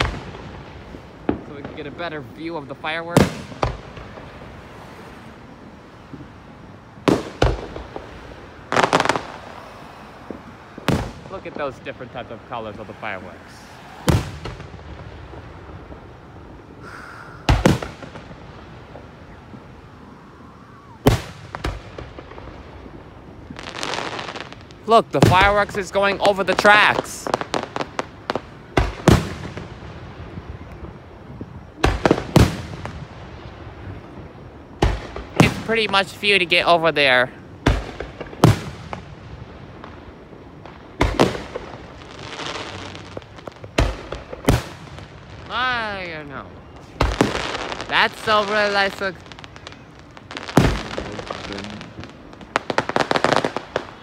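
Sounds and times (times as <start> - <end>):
smaller firework crack: 0.0 - 54.0
firework shells bursting: 10.2 - 19.8, 34.8 - 54.0.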